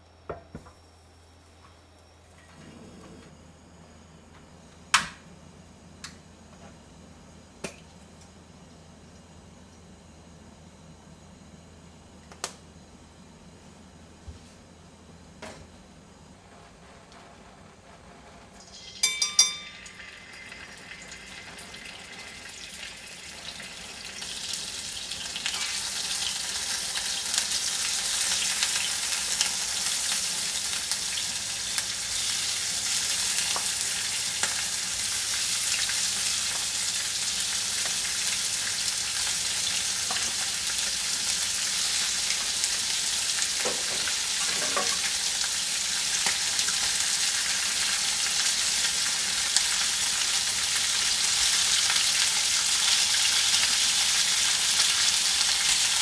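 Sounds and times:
chicken sizzling in hot oil: 18.4 - 56.0.

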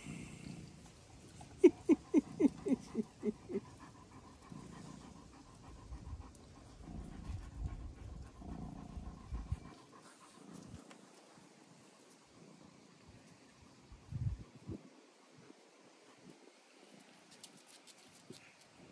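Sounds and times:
dog panting: 1.4 - 11.3.

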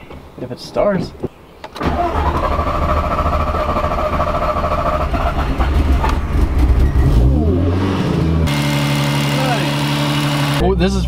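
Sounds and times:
car starter cranking: 1.8 - 6.3.

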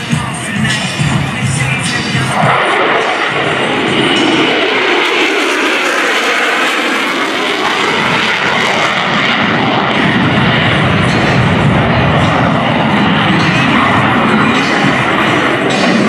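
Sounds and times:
jet engine roaring with afterburner: 0.0 - 16.0
deep low rumble: 7.7 - 16.0.

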